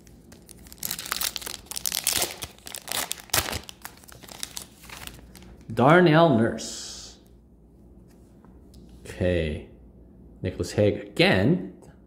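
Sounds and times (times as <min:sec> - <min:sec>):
crinkly wrapper torn open: 0:00.0 - 0:05.7.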